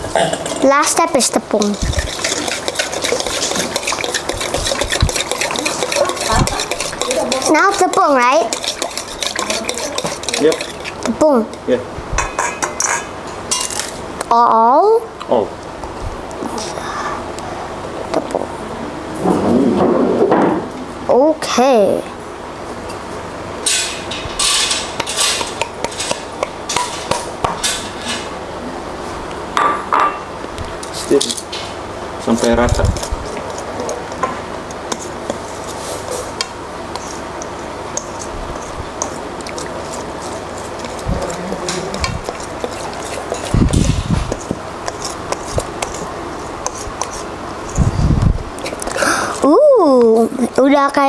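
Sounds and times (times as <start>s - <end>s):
whisk scraping metal bowl: 1.5s - 11.2s, 24.4s - 27.8s, 32.3s - 34.2s, 36.9s - 47.9s.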